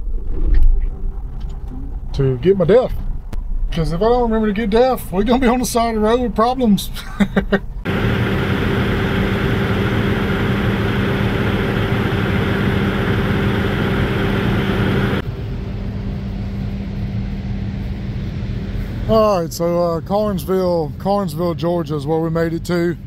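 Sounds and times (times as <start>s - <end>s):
truck diesel engine drone: 7.8s - 21.5s.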